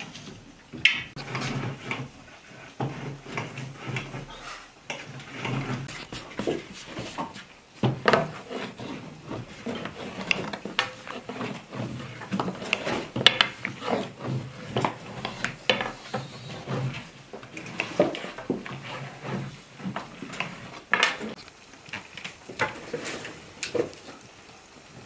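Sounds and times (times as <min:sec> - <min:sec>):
rolling pin rolling over dough: 0:00.0 - 0:22.0.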